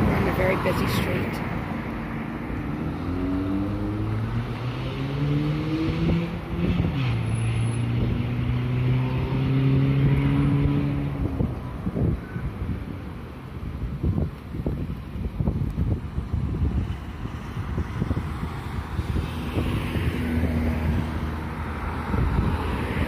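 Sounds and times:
vehicle engine accelerating: 2.6 - 11.5
wind buffeting microphone: 9.8 - 23.0.

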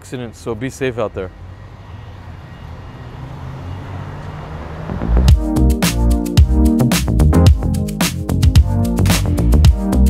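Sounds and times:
electronic music with heavy beat: 5.0 - 10.0.

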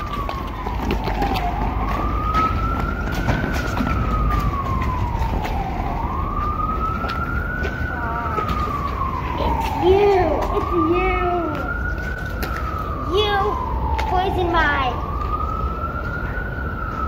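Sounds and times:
running footsteps on asphalt: 0.0 - 13.0
wailing siren: 0.0 - 17.0.

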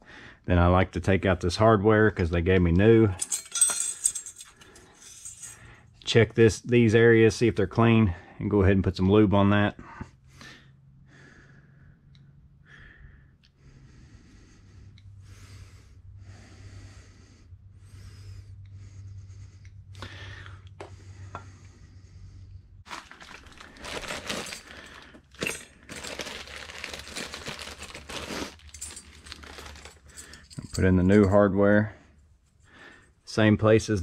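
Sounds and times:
plastic packet crinkling and tearing: 22.9 - 30.0.

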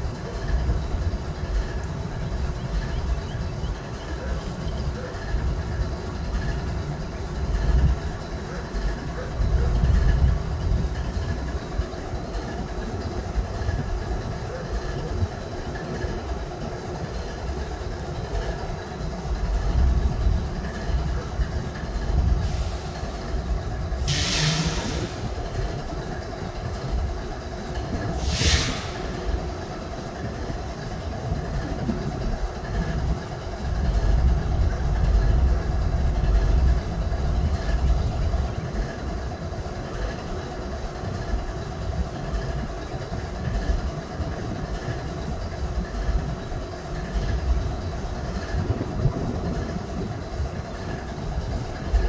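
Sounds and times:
locomotive diesel idling: 0.0 - 52.0
brief hiss: 24.1 - 25.2, 28.2 - 29.2.

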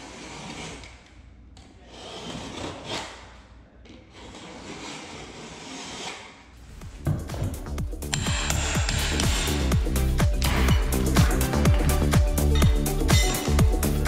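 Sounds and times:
utility knife scraping along baseboard: 0.0 - 3.4, 4.0 - 7.0, 8.0 - 11.7.

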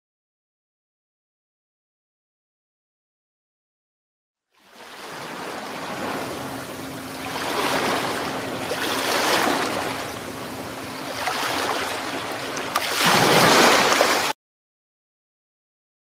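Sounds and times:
ocean waves washing ashore: 4.5 - 14.4.

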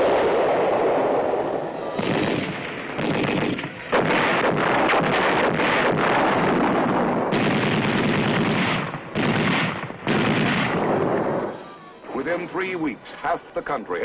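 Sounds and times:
explosions: 0.0 - 12.0
continuous gunfire: 1.9 - 11.5.

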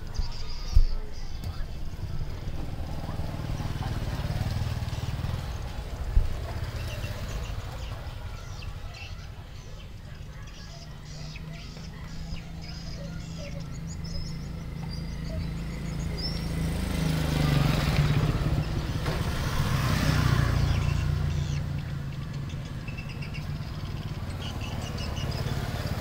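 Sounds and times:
faint bird chirps: 0.0 - 4.4, 6.3 - 16.7, 20.2 - 26.0
vehicle engine passing by: 1.6 - 26.0.

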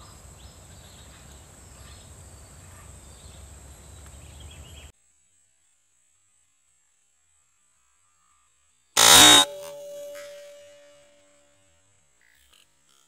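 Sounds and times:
high insect drone: 9.0 - 11.0.

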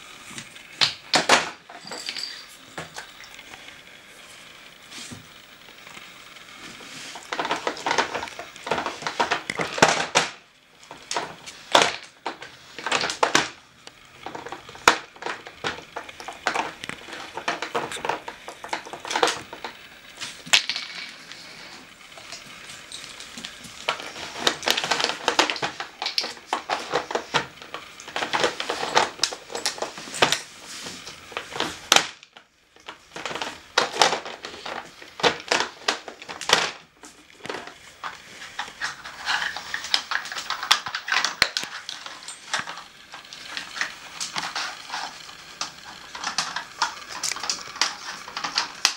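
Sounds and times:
plastic puzzle clattering on wooden floor: 0.3 - 3.6, 5.1 - 48.9
sharp plastic clicks and rattles: 7.3 - 19.9, 23.1 - 30.4, 37.4 - 48.9.

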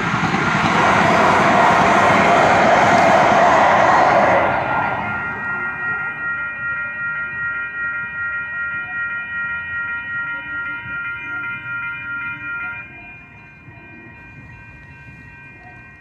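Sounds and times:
crossing warning bells ringing: 0.0 - 16.0.

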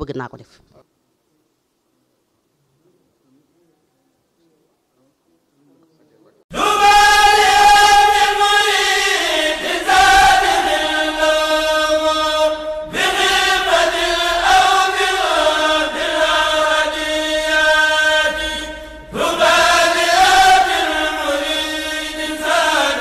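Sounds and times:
chanted vocal music: 6.5 - 23.0.

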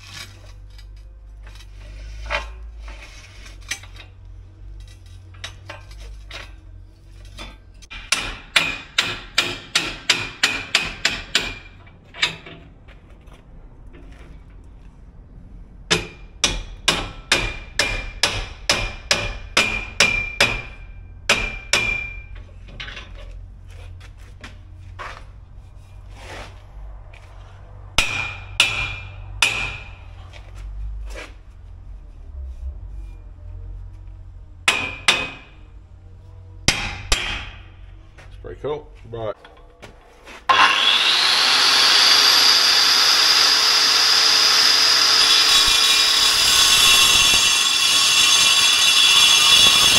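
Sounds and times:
hammer striking steel prop: 34.7 - 35.6.

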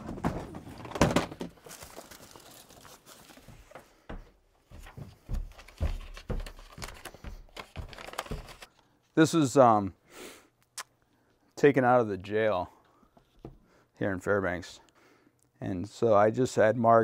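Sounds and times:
footsteps on stairs: 3.5 - 8.7.

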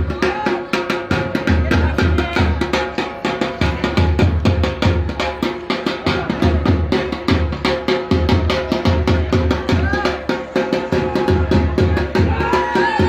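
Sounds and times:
drum beating: 0.0 - 13.0.

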